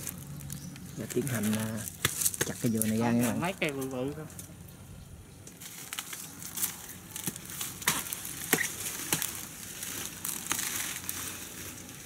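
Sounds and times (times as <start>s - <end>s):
blade chopping palm fibre: 1.6s - 2.6s, 7.2s - 11.1s.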